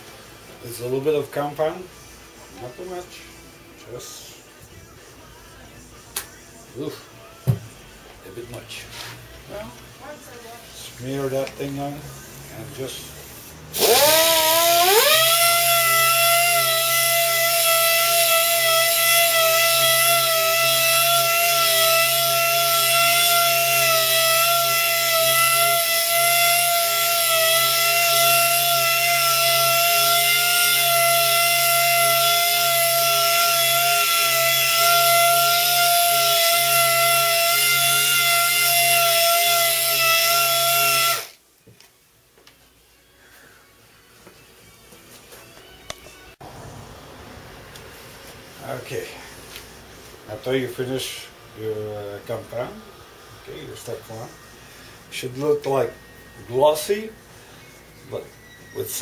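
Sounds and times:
pneumatic polisher whine: 0:13.7 - 0:41.4.

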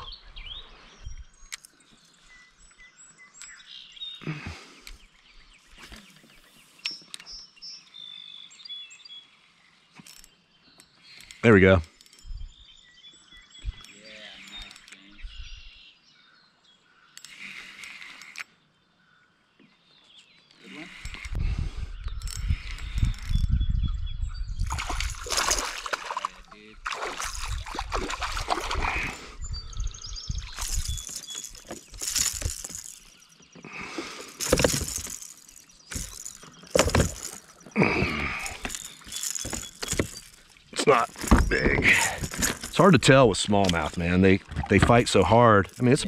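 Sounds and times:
songbirds chirping and singing: 0:00.0 - 0:46.0
fish thrashing on plastic deck: 0:24.7 - 0:29.1, 0:34.0 - 0:42.8.

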